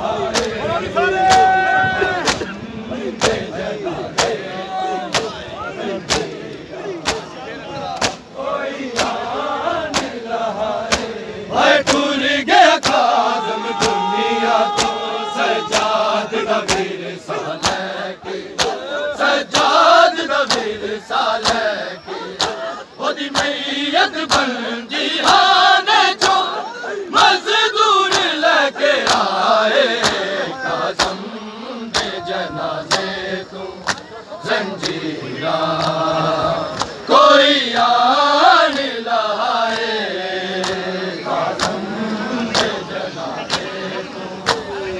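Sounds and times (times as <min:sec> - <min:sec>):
crowd of men chanting: 0:00.0 - 0:44.9
hands slapping bare chests: 0:00.3 - 0:00.6, 0:01.3 - 0:01.5, 0:02.2 - 0:02.6, 0:03.2 - 0:03.5, 0:04.1 - 0:04.5, 0:05.1 - 0:05.4, 0:06.0 - 0:08.3, 0:08.9 - 0:09.2, 0:09.9 - 0:10.2, 0:10.8 - 0:11.2, 0:11.8 - 0:12.2, 0:12.8 - 0:14.1, 0:14.7 - 0:15.1, 0:15.7 - 0:17.9, 0:18.6 - 0:18.8, 0:19.5 - 0:19.8, 0:20.4 - 0:20.8, 0:21.4 - 0:21.7, 0:22.3 - 0:22.7, 0:23.3 - 0:23.6, 0:24.3 - 0:24.6, 0:26.2 - 0:26.4, 0:28.1 - 0:28.4, 0:29.0 - 0:29.4, 0:30.0 - 0:30.3, 0:31.0 - 0:31.2, 0:31.9 - 0:32.2, 0:32.8 - 0:33.2, 0:33.8 - 0:34.1, 0:35.8 - 0:36.0, 0:36.7 - 0:37.0, 0:40.6 - 0:40.9, 0:41.5 - 0:41.9, 0:42.5 - 0:42.8, 0:43.4 - 0:43.8, 0:44.4 - 0:44.7.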